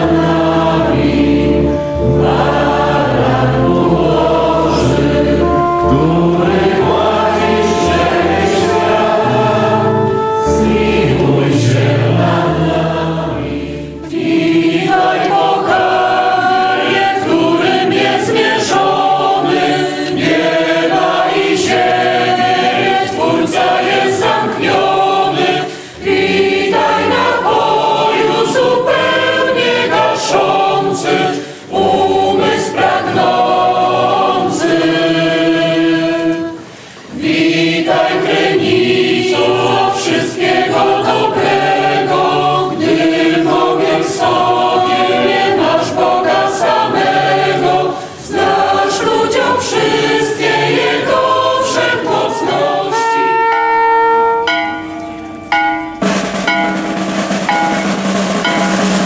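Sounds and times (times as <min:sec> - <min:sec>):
deep bass notes: 0:00.0 - 0:14.6
choir singing in parts: 0:00.0 - 0:54.8, 0:56.0 - 0:59.0.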